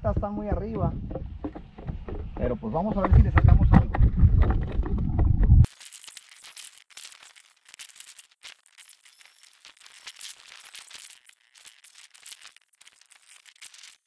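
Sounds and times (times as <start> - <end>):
leaves and twigs crackling: 5.7 - 14.0.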